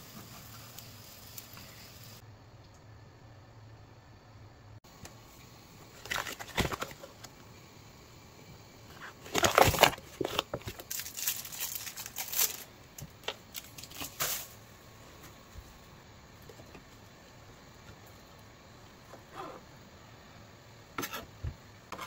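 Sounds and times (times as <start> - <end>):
packaging crinkling and rustling: 6.0 - 7.3, 9.1 - 14.6.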